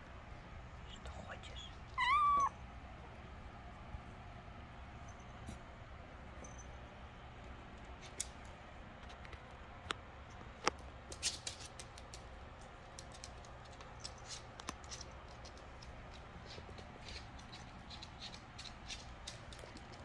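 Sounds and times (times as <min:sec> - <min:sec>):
kittens clawing cardboard scratcher: 0:12.9 - 0:20.0.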